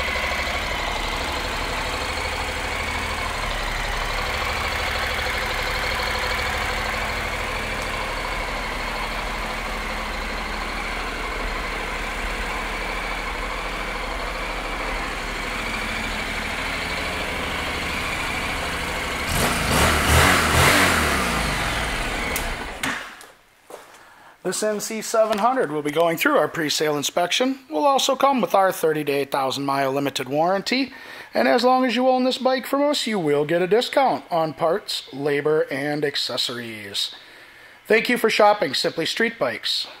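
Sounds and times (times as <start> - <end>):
motorcycle engine idling and revving: 0.0 - 23.2.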